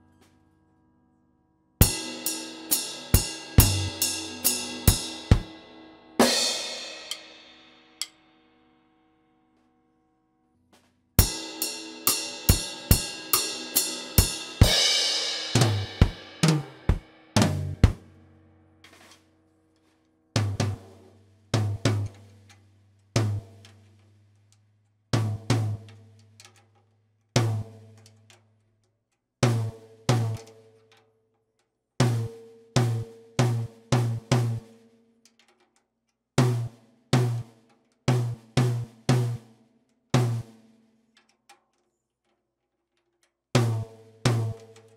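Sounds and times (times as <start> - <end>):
drum kit strokes: 1.8 - 7.4, 11.2 - 18.2, 20.4 - 22.2, 23.2 - 23.6, 32.0 - 34.6, 36.4 - 37.5, 38.1 - 39.4, 40.2 - 40.5
toms and bass drum strokes: 1.8 - 7.6, 11.2 - 18.2, 20.4 - 22.4, 23.2 - 23.9, 25.2 - 26.0, 27.4 - 28.0, 29.4 - 30.5, 32.0 - 34.7, 36.4 - 39.5, 40.2 - 40.6, 43.6 - 44.8
ringing cymbals: 1.8 - 8.2.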